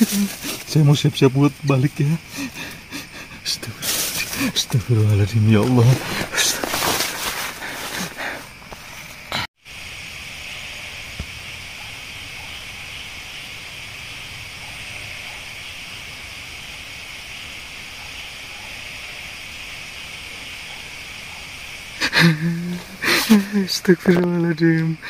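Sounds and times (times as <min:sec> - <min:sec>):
night insects chorus: 0:00.0 - 0:25.0.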